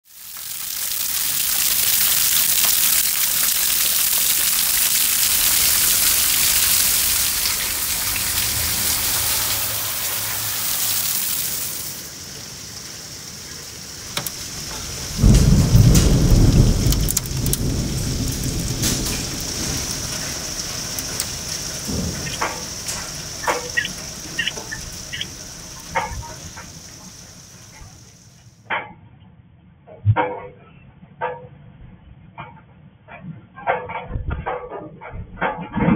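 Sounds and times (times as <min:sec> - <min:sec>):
heavy rain and hail: 0:00.0 - 0:28.4
hailstones clicking on metal grill: 0:00.1 - 0:12.4, 0:14.0 - 0:27.9
thunder rumble: 0:00.4 - 0:28.3.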